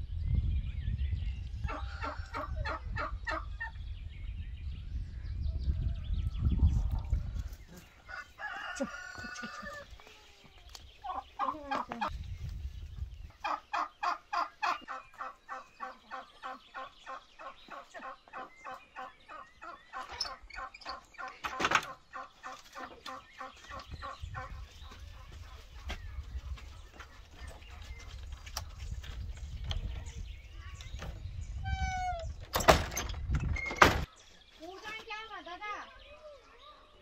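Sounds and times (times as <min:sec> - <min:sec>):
chicken clucking: 0:11.0 - 0:12.2, 0:13.4 - 0:29.0.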